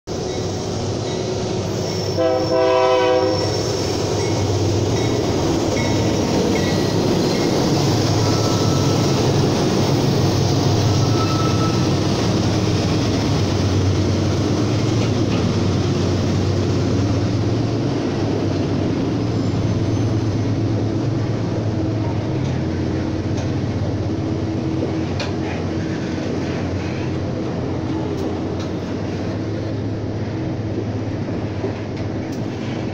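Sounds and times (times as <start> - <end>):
train rumbling: 0.1 - 32.9
locomotive horn blast: 2.0 - 3.6.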